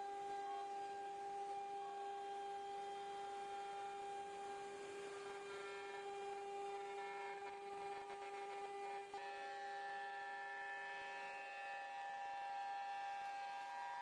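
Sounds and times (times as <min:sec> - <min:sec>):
router spindle whine: 0:00.0 - 0:14.0.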